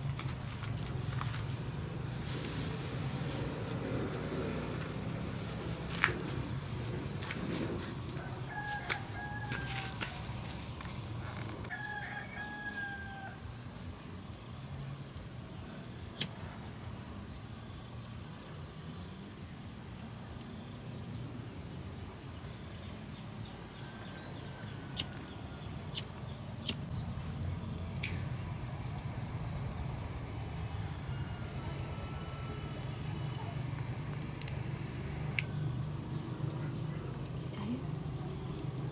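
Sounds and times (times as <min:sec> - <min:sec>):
steady high-pitched whine: 0:00.0 - 0:12.4, 0:22.0 - 0:38.9
rooster crowing: 0:07.2 - 0:10.4, 0:11.6 - 0:13.6, 0:23.5 - 0:25.8, 0:30.6 - 0:33.7.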